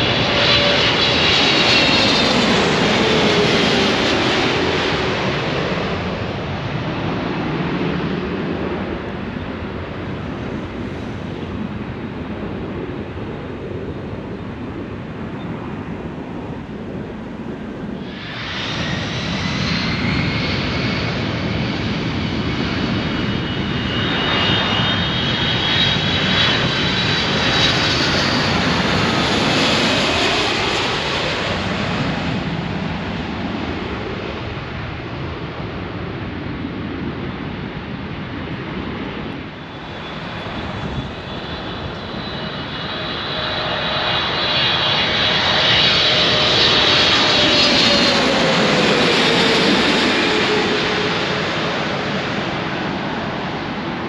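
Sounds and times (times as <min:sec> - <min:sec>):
jet engines rumbling and whining: 0:00.0 - 0:54.0.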